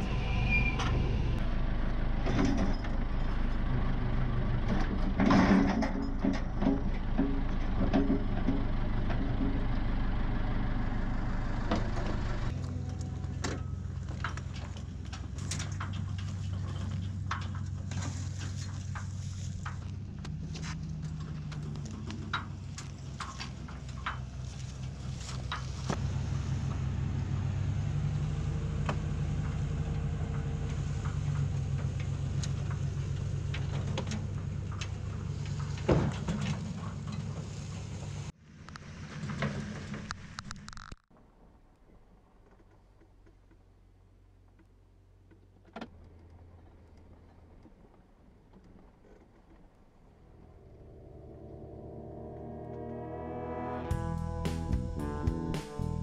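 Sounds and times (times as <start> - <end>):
backhoe engine running: 0.0 - 40.4, 53.9 - 56.0
metal clanks and rattles: 2.2 - 3.7, 4.6 - 9.8, 11.7 - 26.0, 29.3 - 37.7.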